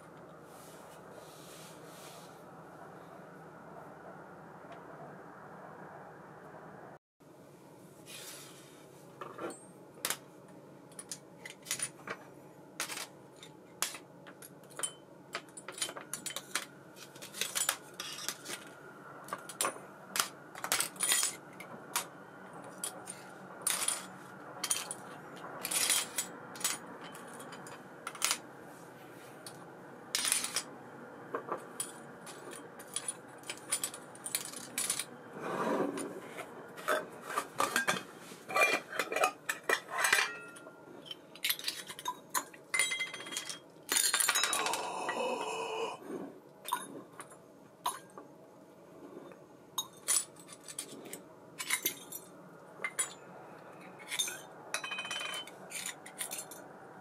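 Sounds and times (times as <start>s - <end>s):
metal parts clicking and clinking: 10.9s - 28.4s, 29.4s - 30.7s, 31.3s - 35.1s, 36.0s - 44.9s, 49.8s - 53.2s, 53.8s - 56.7s.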